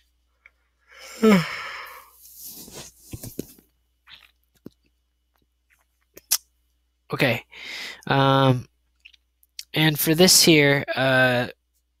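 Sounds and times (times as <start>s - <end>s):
breathy exhaling: 0.9s - 2.2s
man sighing: 0.9s - 2.2s.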